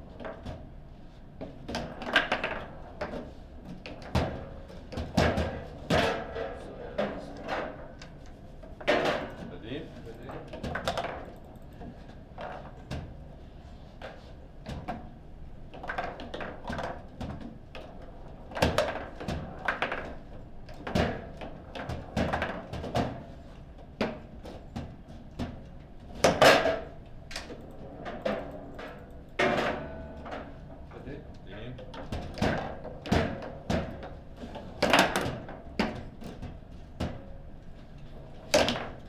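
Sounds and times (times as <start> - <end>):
table football ball clacks and thuds: 15.8 - 23.3, 31.8 - 34.2.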